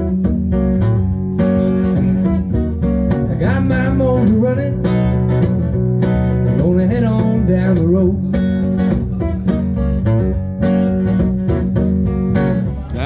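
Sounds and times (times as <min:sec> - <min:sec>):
acoustic guitar strumming: 0:00.0 - 0:13.0
man singing: 0:03.3 - 0:05.0, 0:06.6 - 0:08.4.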